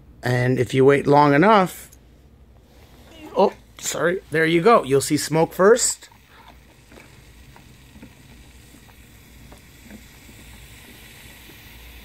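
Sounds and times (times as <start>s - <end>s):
chemical reaction sizzling hiss: 2.6s - 12.0s
small crackles: 6.0s - 12.0s.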